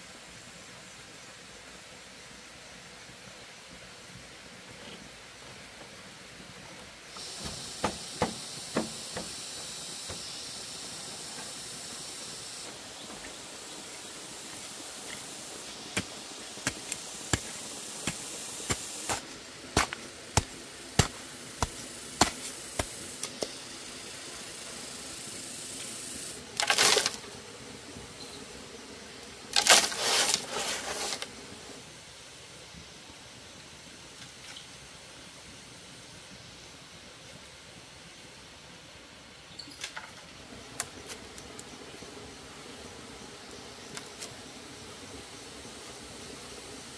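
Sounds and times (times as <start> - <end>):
steady hiss: 0.0 - 46.9
rustling bursts: 29.5 - 31.3.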